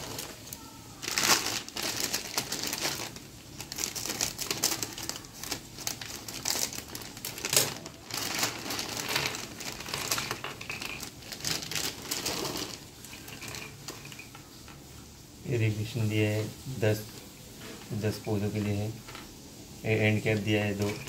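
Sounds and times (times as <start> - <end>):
scissors cutting plastic: 0.0 - 12.8
plastic bag crinkling: 0.0 - 14.8, 19.9 - 21.0
plastic fittings tumbling on table: 6.6 - 14.8.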